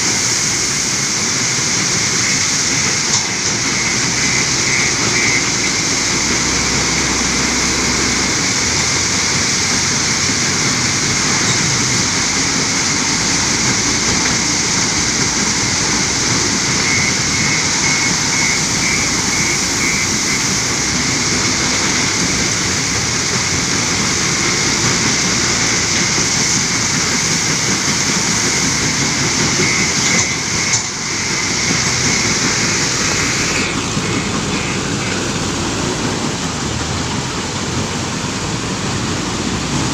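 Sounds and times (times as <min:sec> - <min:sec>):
diesel engine working: 0:00.0 - 0:39.9
stone crusher and conveyors running: 0:00.0 - 0:39.9
rapid high beeping: 0:02.0 - 0:07.6, 0:13.6 - 0:23.0, 0:24.5 - 0:35.3.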